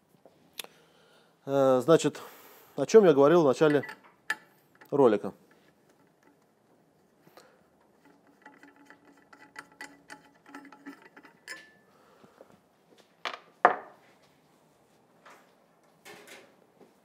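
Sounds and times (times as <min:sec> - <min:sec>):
metal parts ticking and scraping: 0:03.6 - 0:11.9.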